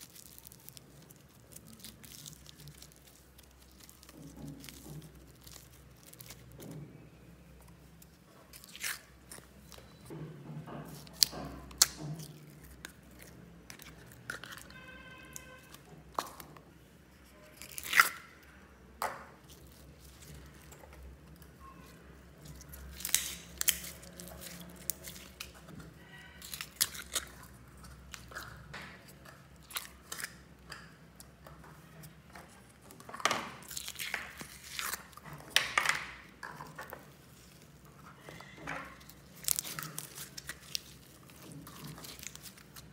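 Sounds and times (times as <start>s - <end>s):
slime squishing by hand: 0.0s - 10.1s, 10.8s - 42.9s.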